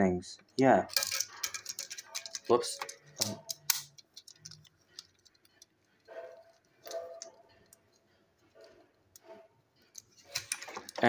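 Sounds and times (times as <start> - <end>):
plastic toy clicks: 0.9 - 5.8.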